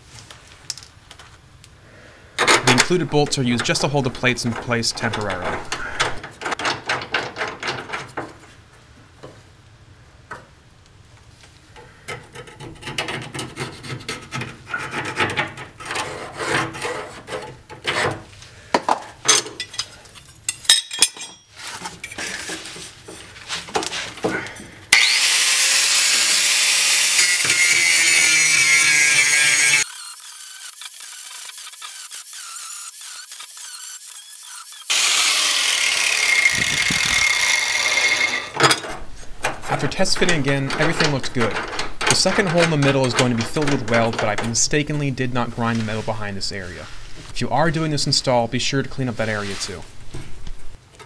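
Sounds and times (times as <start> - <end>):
metal parts clinking and scraping: 2.4 - 8.1, 19.2 - 22.8, 38.1 - 44.7
angle grinder grinding steel: 2.6 - 6.2, 24.9 - 44.8.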